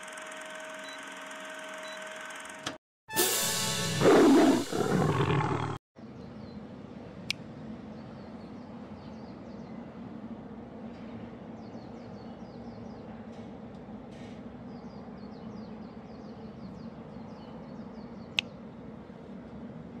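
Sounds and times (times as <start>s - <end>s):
faint outdoor ambience: 3.6s - 20.0s
lion roar sound effect: 4.0s - 5.8s.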